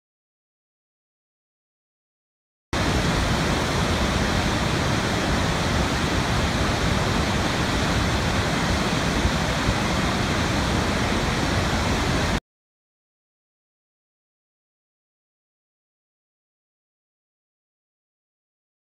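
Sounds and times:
waterfall rushing: 2.8s - 12.4s.

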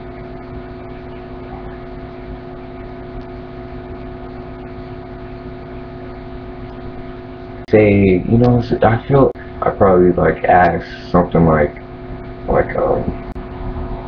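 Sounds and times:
background hum and hiss: 0.0s - 14.0s
low steady tones: 0.0s - 14.0s.

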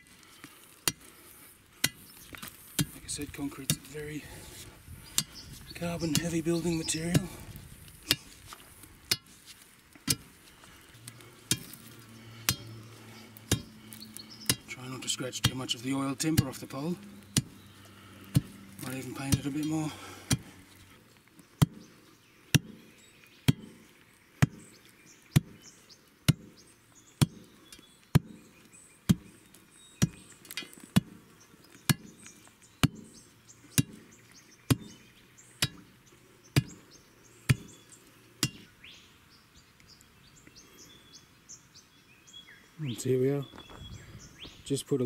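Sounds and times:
tamping bar thudding into soil: 1.8s - 4.0s, 10.0s - 10.3s, 11.5s - 12.7s, 13.4s - 13.7s, 27.2s - 27.5s, 34.7s - 35.0s, 37.5s - 37.8s.

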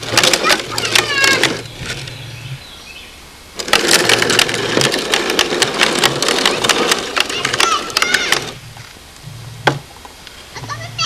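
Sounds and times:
toy wheelbarrow wheel rattling: 0.0s - 2.2s, 3.6s - 8.7s.

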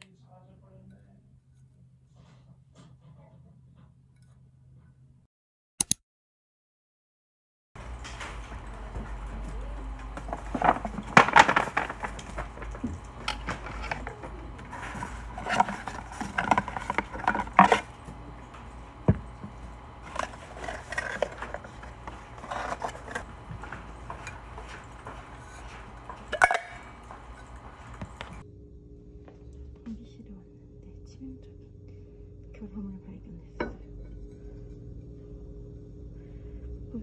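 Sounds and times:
objects rustling: 7.8s - 28.4s
steady low hum: 7.8s - 37.0s.

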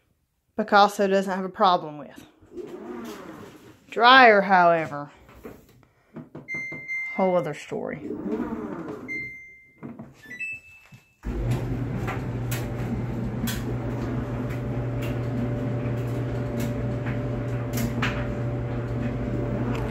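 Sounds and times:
clothes dryer running: 11.2s - 19.9s.

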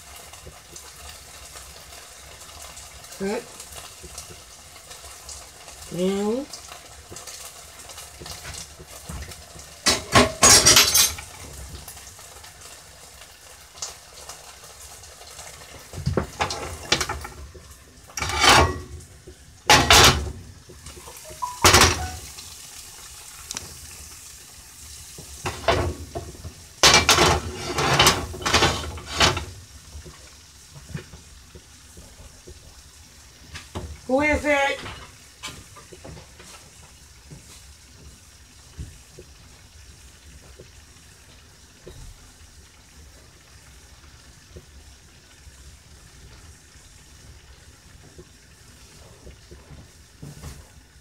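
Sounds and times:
dishes and pans clattering: 8.4s - 11.5s, 16.0s - 17.5s, 18.1s - 19.0s, 19.7s - 20.4s, 21.0s - 22.3s, 25.4s - 29.5s, 34.7s - 36.6s.

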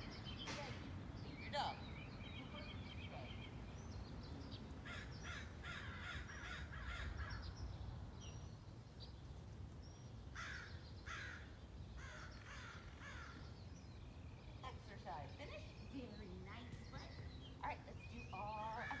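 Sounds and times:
low outdoor rumble: 0.0s - 19.0s
crows cawing: 4.8s - 7.5s, 10.3s - 13.5s, 18.7s - 19.0s.

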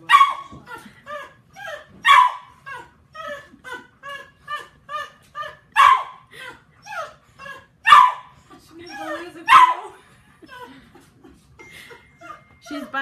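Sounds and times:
dog barking and yipping: 0.0s - 0.6s, 1.6s - 2.9s, 5.7s - 6.2s, 7.5s - 10.0s.

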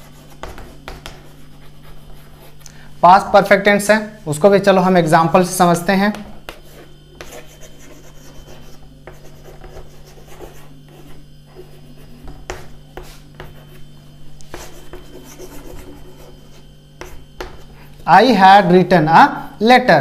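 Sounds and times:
chalk tapping board: 0.0s - 2.3s, 6.0s - 17.7s
chalk scratching on chalkboard: 0.0s - 2.6s, 6.1s - 18.1s.

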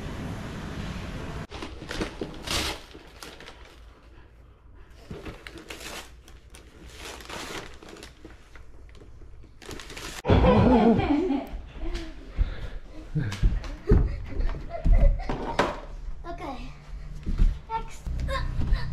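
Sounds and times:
rustling of things handled: 1.5s - 10.2s.

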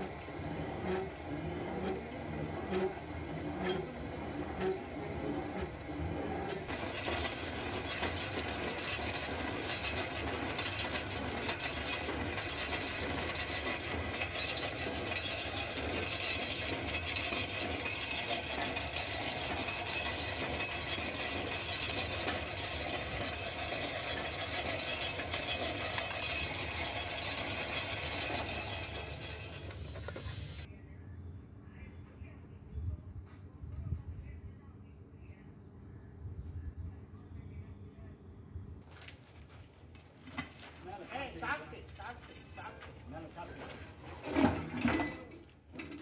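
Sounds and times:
boring machine running with whine: 0.0s - 30.7s.

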